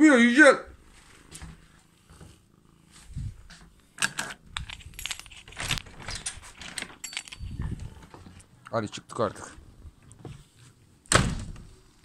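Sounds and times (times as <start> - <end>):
clicks and rattles: 4.0 - 7.9
clicks and metallic jangles: 4.6 - 5.6, 6.2 - 7.7.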